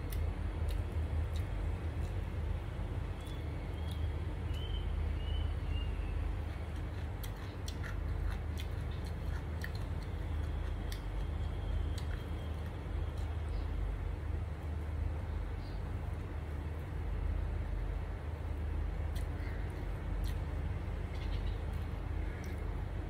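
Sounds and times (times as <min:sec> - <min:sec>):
person chewing food: 0:00.0 - 0:02.6, 0:03.2 - 0:04.6, 0:06.3 - 0:13.4, 0:19.1 - 0:20.7
steady low hum: 0:00.0 - 0:23.0.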